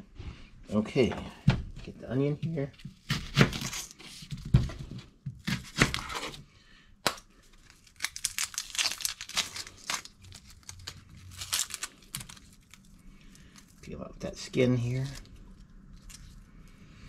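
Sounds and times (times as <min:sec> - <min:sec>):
onion skin crackling and tearing: 0:02.5 - 0:04.5, 0:05.4 - 0:06.4, 0:07.0 - 0:16.8.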